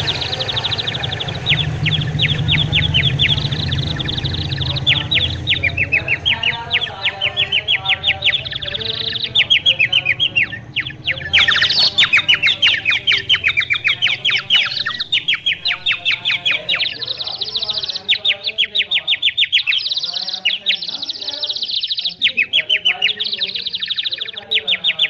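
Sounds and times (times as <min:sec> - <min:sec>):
low hum: 0:00.0 - 0:19.7
small birds chirping: 0:00.0 - 0:25.0.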